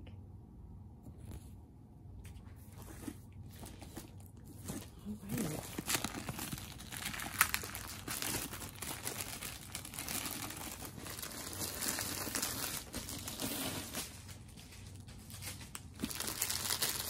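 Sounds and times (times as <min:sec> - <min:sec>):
plastic wrap crinkling: 0:03.5 - 0:17.0.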